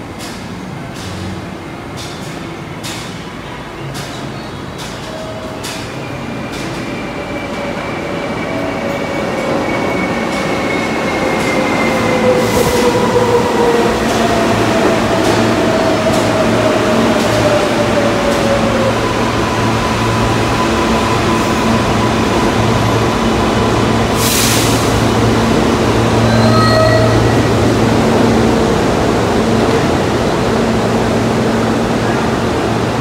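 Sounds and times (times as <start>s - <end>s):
wheels rumbling and clicking on rails: 0.0s - 33.0s.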